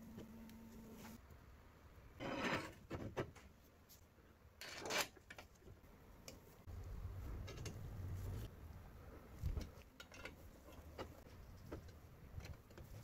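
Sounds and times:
metal sliding scrape: 2.2 - 2.8.

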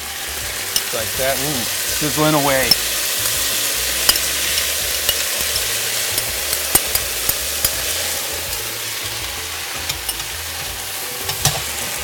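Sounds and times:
sauce sizzling in a skillet: 0.0 - 12.0
spatula clicking on pan: 4.0 - 8.7.

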